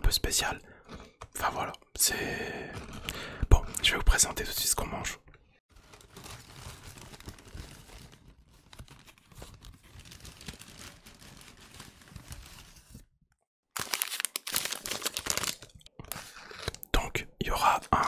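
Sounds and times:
food packaging crinkling: 5.7 - 13.0, 13.8 - 16.9.

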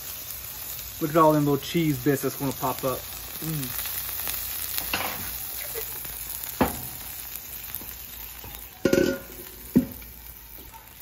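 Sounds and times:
food sizzling on a griddle: 0.0 - 11.0
metal bowl clanking on griddle: 4.8 - 5.3, 8.8 - 10.0.

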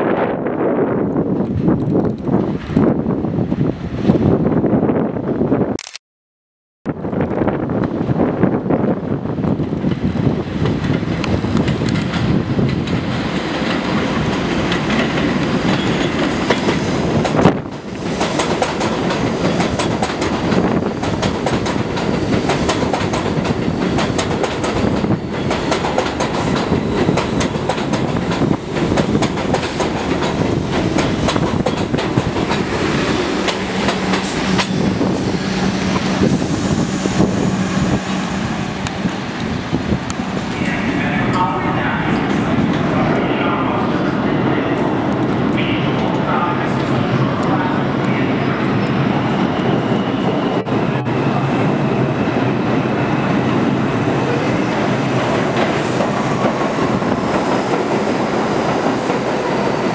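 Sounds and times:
train wheels clattering on rails: 9.5 - 36.7, 52.8 - 59.9.

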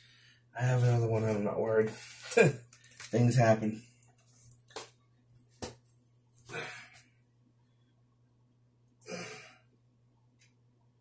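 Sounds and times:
man sighing: 6.5 - 7.0, 9.0 - 9.6.

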